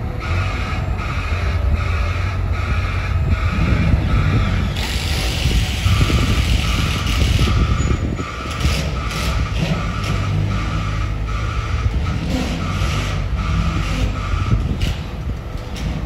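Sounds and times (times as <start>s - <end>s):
street traffic: 0.0s - 16.0s
tram rumbling on rails: 0.0s - 16.0s
high electronic beep: 5.7s - 10.2s.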